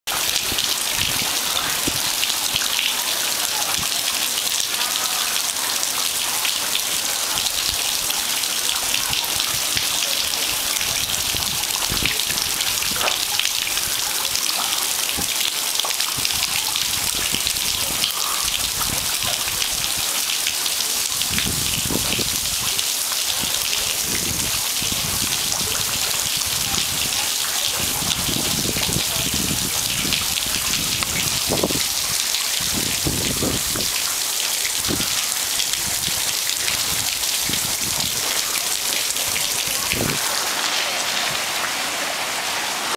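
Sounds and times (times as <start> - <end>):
fountain water splashing: 0.1 - 42.9.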